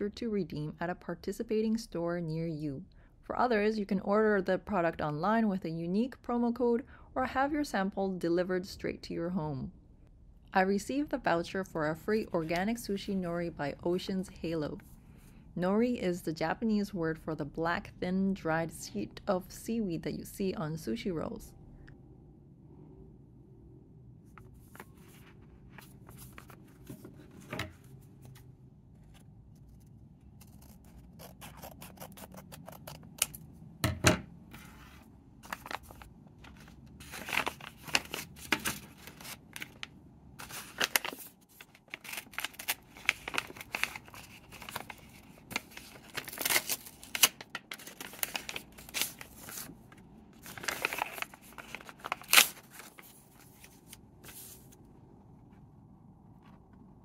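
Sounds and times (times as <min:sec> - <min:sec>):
paper rustling and crackling: 0:24.4 - 0:33.4, 0:34.5 - 0:54.8.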